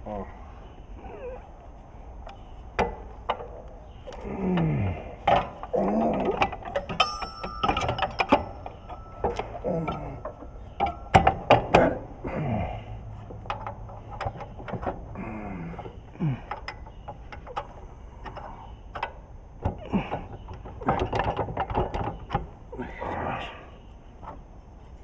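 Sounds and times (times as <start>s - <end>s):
metal tools clanking: 2.3s - 23.0s.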